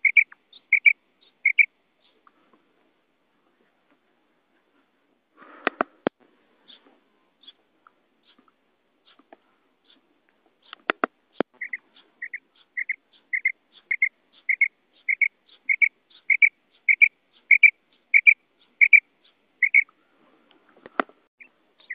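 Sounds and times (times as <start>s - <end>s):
quail calling doubled notes: 0.0s - 1.7s, 11.6s - 19.9s
sharp clicks: 5.6s - 6.2s, 10.6s - 11.5s.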